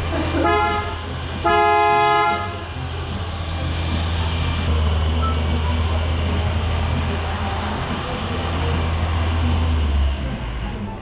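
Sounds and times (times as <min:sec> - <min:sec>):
steady low hum: 0:00.0 - 0:11.0
car horn honking: 0:00.4 - 0:02.7.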